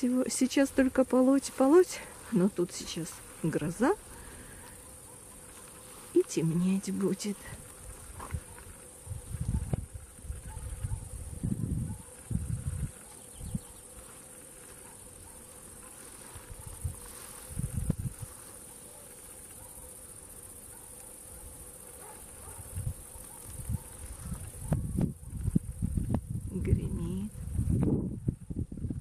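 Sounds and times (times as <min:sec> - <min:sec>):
insects chirring: 0:00.0 - 0:29.0
low rumbles on microphone: 0:09.0 - 0:13.7, 0:23.6 - 0:29.0.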